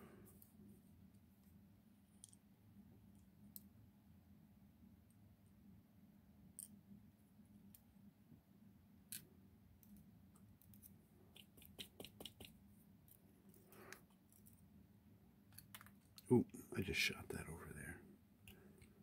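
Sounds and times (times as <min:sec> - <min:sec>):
small metallic clicks and taps: 0:15.5 - 0:16.3.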